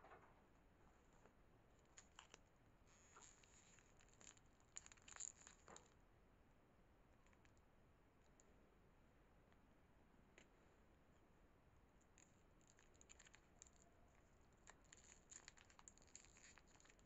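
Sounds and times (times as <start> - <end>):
wrapper crinkling: 1.8 - 6.0, 12.1 - 17.0.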